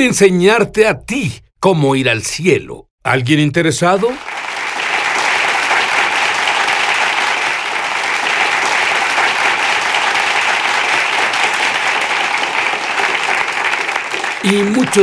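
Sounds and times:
audience applauding: 4.0s - 15.0s.

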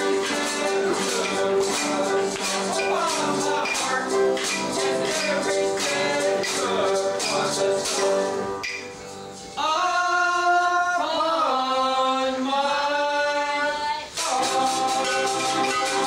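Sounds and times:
men singing held notes: 0.0s - 8.6s, 9.5s - 16.0s
shaker keeping time: 0.0s - 9.6s, 14.1s - 16.0s
jugband music: 0.0s - 10.3s, 13.3s - 16.0s.

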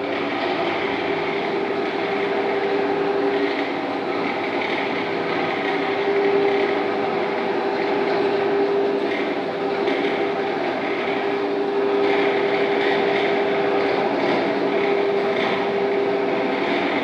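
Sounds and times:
floor grinding machine: 0.0s - 17.0s.

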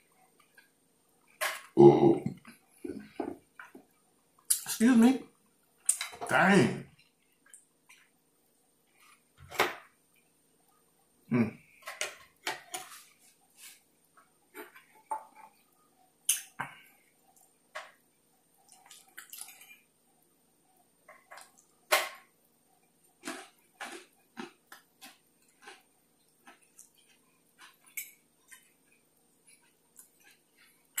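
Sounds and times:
wet chewing and lip smacking: 23.1s - 31.0s.

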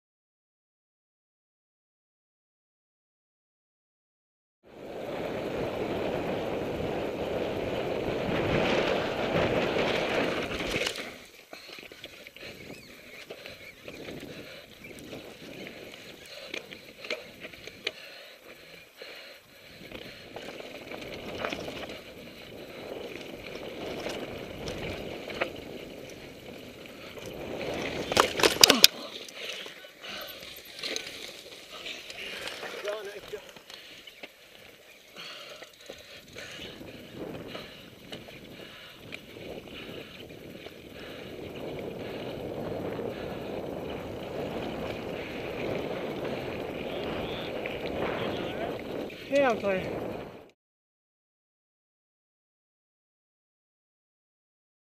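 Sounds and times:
tyre and wind rush: 4.7s - 17.9s, 19.6s - 33.6s, 34.6s - 50.5s
bike rattling over bumps: 4.8s - 50.5s.

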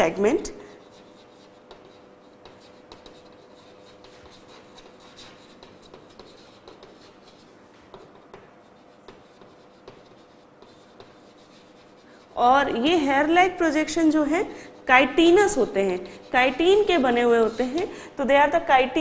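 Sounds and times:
chalk scratching on blackboard: 0.7s - 18.0s
chalk tapping on board: 0.8s - 12.3s, 15.3s - 18.0s.

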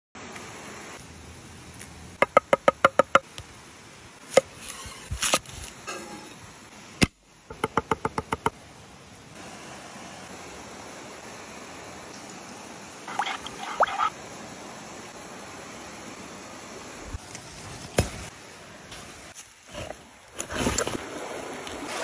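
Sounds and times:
stream water rushing: 9.4s - 17.1s, 20.0s - 22.0s.

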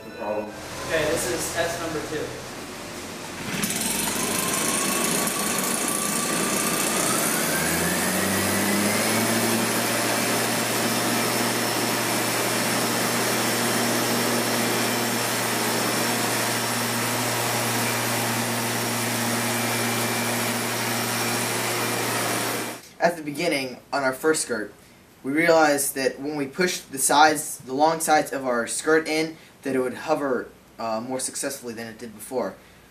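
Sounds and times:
leaf blower engine running: 0.6s - 22.8s.

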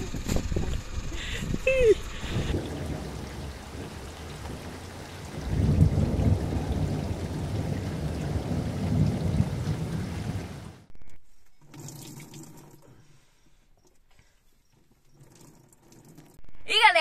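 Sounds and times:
heavy rain on a car: 1.8s - 10.9s.

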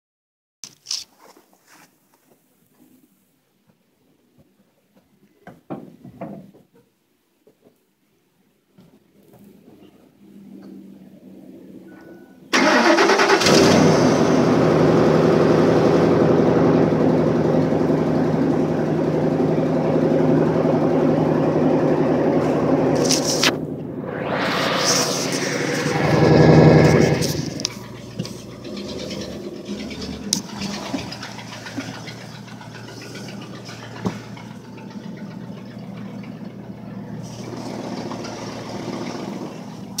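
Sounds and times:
engine idling: 12.5s - 40.0s
starter cranking: 26.5s - 39.7s.

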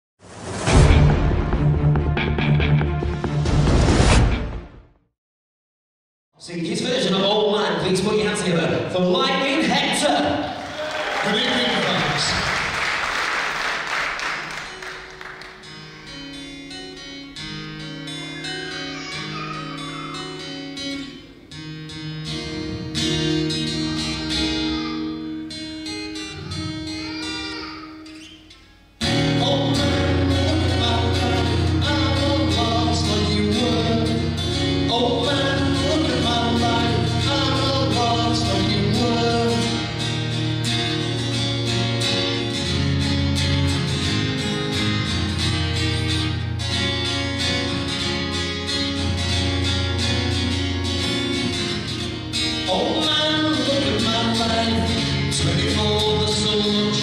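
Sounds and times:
acoustic guitar: 13.7s - 57.0s
man singing: 29.0s - 40.1s, 52.6s - 57.0s.

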